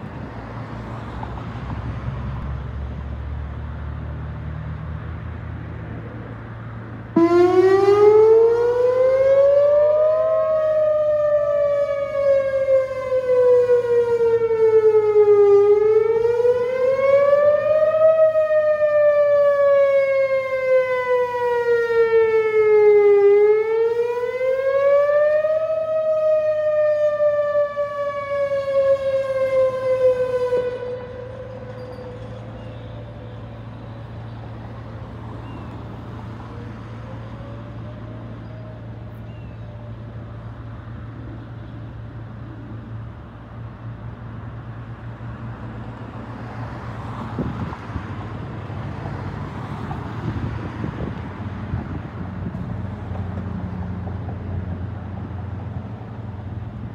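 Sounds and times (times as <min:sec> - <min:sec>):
road traffic noise: 0:00.0 - 0:56.9
warning siren wailing: 0:07.1 - 0:41.0.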